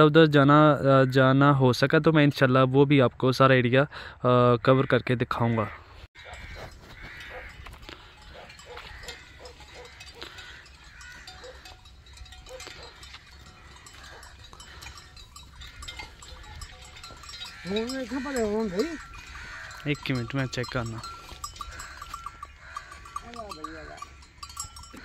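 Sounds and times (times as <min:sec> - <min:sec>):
cattle bells clanking: 0:06.2 - 0:25.0.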